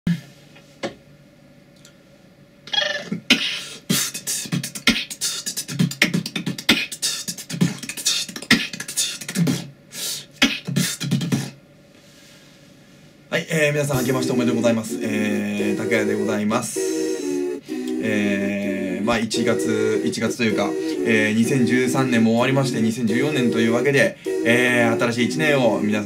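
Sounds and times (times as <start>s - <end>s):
human beatboxing: 3.1s - 11.6s, 17.8s - 26.0s.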